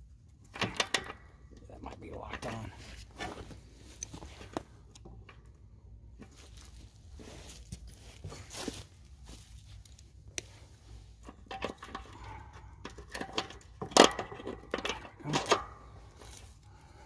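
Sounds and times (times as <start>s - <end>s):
metallic clanks: 11.2s - 16.4s.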